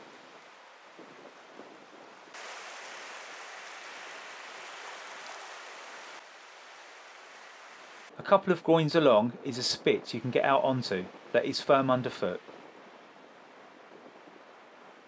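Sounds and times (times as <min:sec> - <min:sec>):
small waves washing over pebbles: 0:00.0 - 0:08.1.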